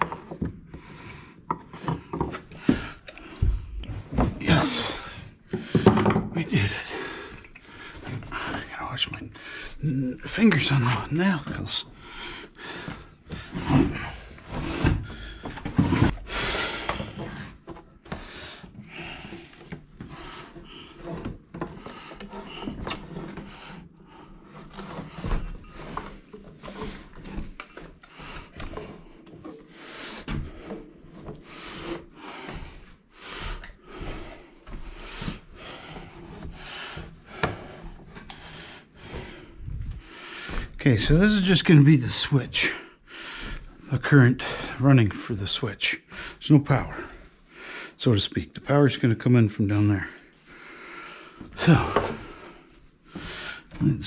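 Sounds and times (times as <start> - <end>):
cable scraping against wood: 9.8 - 41.9.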